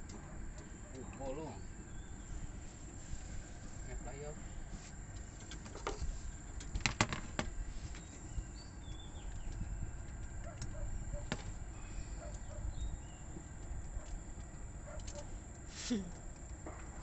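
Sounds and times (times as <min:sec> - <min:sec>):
steady low rumble: 0:00.0 - 0:17.0
sharp handling clicks and taps: 0:05.1 - 0:08.1.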